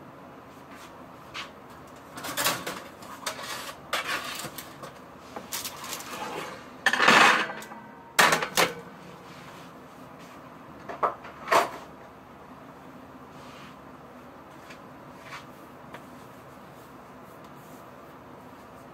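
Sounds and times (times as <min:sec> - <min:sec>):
pans and utensils clinking: 0:05.8 - 0:08.9.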